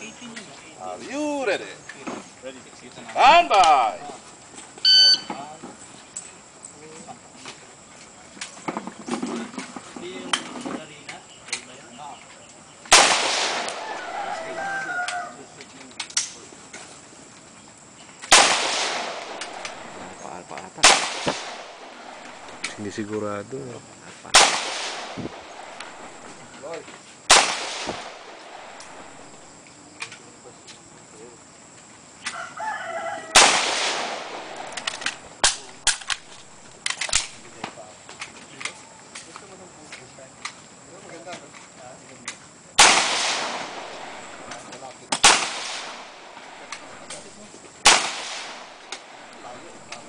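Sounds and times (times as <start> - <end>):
rifle shots echoing: 12.9 - 14.6, 18.3 - 23.0, 24.3 - 26.5, 27.3 - 29.5, 33.3 - 37.6, 42.8 - 50.0.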